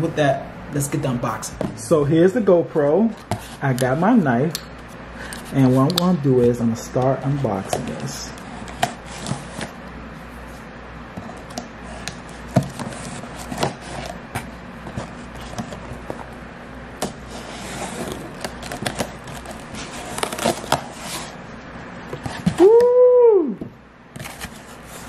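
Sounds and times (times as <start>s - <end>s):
knife slicing packing tape: 17.7s - 21.4s.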